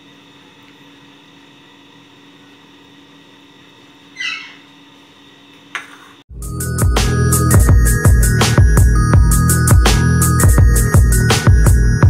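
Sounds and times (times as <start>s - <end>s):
short high-pitched squeak: 4.2s - 4.6s.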